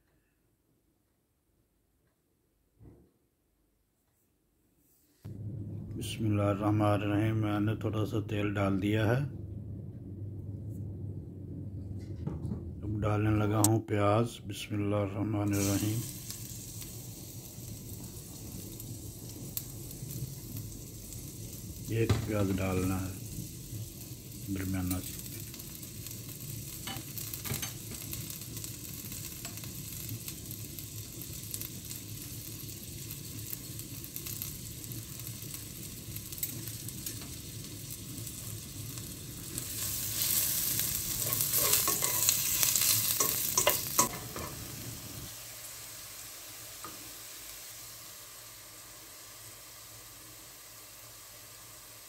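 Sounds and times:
onions sizzling in hot oil: 0:15.4 - 0:52.0.

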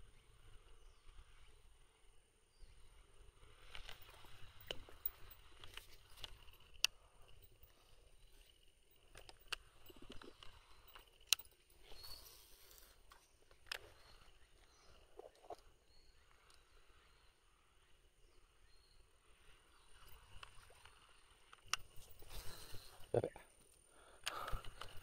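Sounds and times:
fishing rod and reel clicks: 0:03.1 - 0:17.2, 0:19.5 - 0:22.9, 0:24.2 - 0:25.0
faint high chirps: 0:04.0 - 0:23.3.

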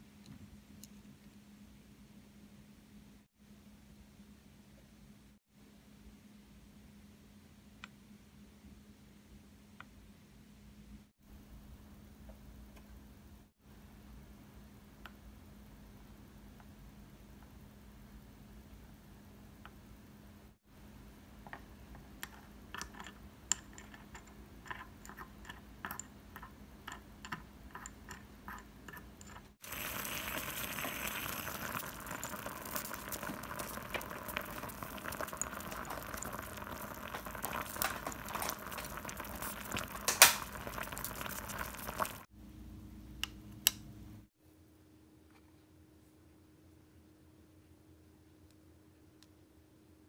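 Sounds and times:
water bubbling at a simmer: 0:29.6 - 0:42.3.

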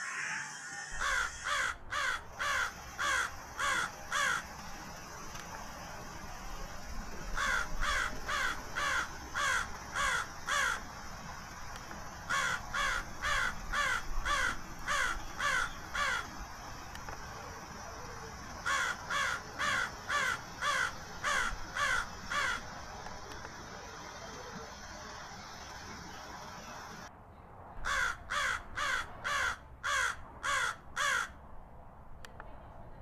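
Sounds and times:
crows cawing: 0:00.0 - 0:04.6, 0:07.4 - 0:11.1, 0:12.3 - 0:16.4, 0:18.6 - 0:22.7, 0:27.8 - 0:31.4.

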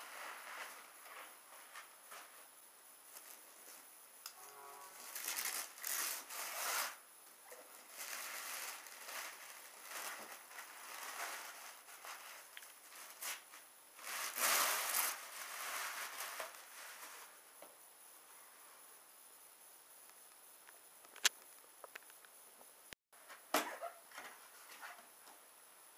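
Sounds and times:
plastic wrapping crinkling and tearing: 0:05.0 - 0:07.0, 0:07.6 - 0:17.4.

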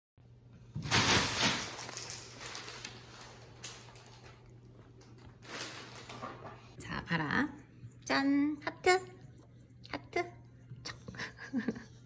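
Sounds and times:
plastic bag crinkling and rustling: 0:00.8 - 0:06.8.

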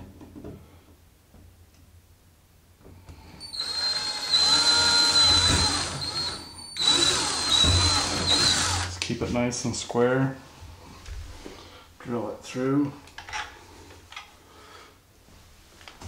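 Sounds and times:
cordless drill whining: 0:03.4 - 0:09.0.

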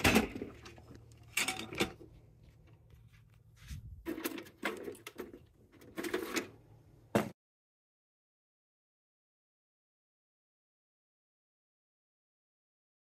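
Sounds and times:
clattering handling noises: 0:00.0 - 0:06.6.

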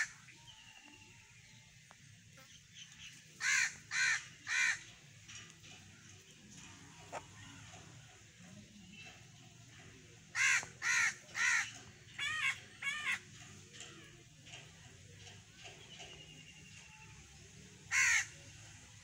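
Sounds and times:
bird cawing harshly: 0:03.4 - 0:04.9, 0:10.3 - 0:13.2, 0:17.9 - 0:18.4.

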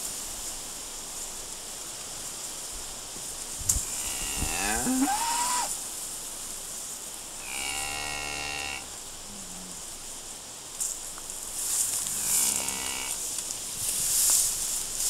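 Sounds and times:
cattle mooing: 0:04.0 - 0:05.7, 0:12.1 - 0:13.2.

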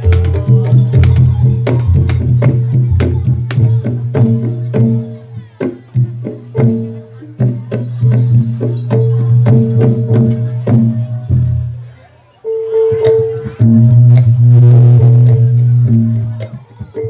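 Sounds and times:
hand drum strokes: 0:00.0 - 0:17.0
ringing metallophone notes: 0:00.0 - 0:17.0.

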